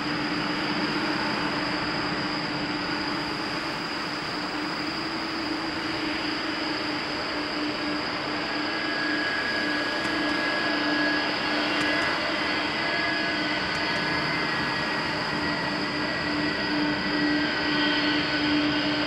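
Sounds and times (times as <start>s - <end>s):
jet engines running: 0.0s - 19.0s.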